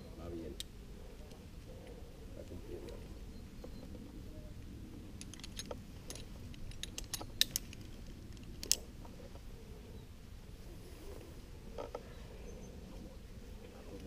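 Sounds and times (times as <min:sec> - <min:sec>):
metal climbing gear clinking: 0:05.2 - 0:08.9.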